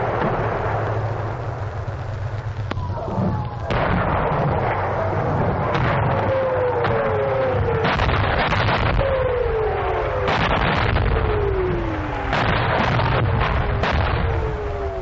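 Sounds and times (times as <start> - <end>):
low rumble: 0.0 - 15.0
rocket launchers wailing: 2.1 - 15.0
sharp bangs: 2.6 - 14.6.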